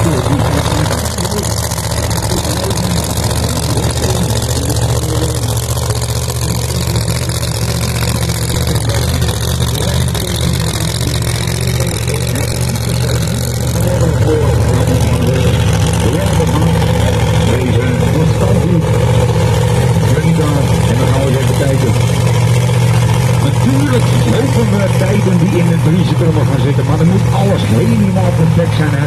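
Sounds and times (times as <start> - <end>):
drag-racing engine running: 0.0 - 29.0.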